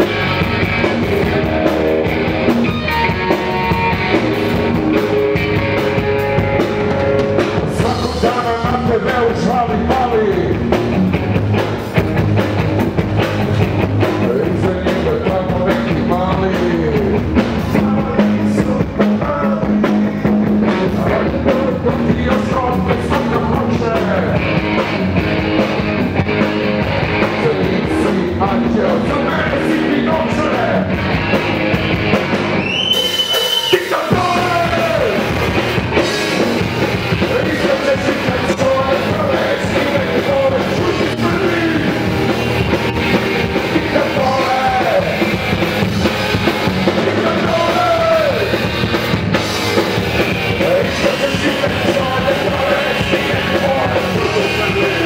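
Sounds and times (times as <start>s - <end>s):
drum kit: 0.0s - 55.0s
punk rock band playing: 0.0s - 55.0s
person singing: 7.6s - 10.7s, 14.1s - 24.4s, 33.4s - 35.3s, 37.2s - 48.6s, 50.4s - 55.0s.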